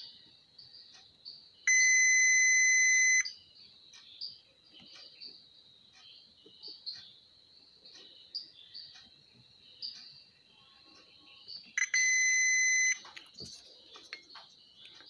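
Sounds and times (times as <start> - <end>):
multimeter continuity beep: 0.0 - 4.4, 11.4 - 13.2.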